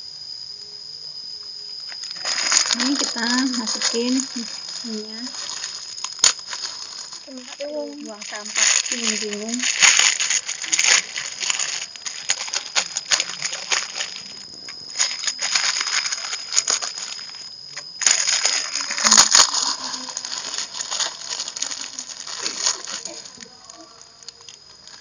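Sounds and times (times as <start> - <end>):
burning wood crackling: 1.8 - 25.0
noodles boiling and bubbling: 2.1 - 25.0
seasoning packet crinkling: 2.2 - 17.4, 18.0 - 25.0.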